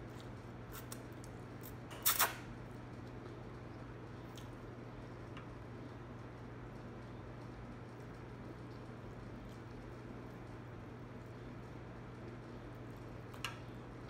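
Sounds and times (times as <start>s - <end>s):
wet chewing and lip sounds: 0.0s - 2.4s.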